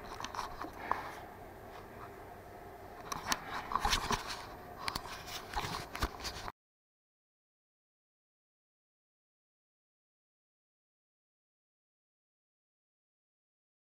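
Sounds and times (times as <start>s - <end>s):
computer mouse clicks: 3.0s - 4.2s.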